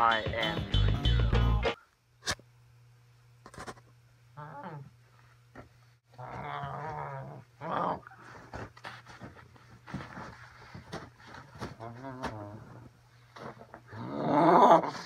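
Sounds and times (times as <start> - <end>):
growling and snarling: 6.2 - 8.1, 13.9 - 15.0.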